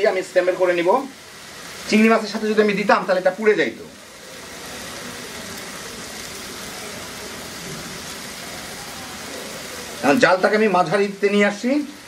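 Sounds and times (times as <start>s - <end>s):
eggs sizzling in a pan: 0.0s - 12.0s.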